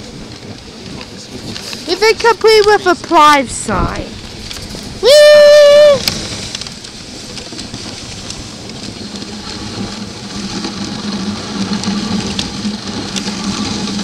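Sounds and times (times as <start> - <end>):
sled runners hissing on snow: 0.0 - 14.0.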